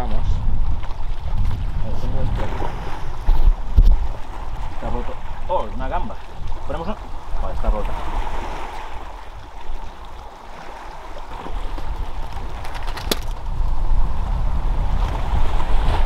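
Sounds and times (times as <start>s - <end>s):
wind rumbling on microphone: 0.0s - 16.0s
sea noise hiss: 2.3s - 12.1s.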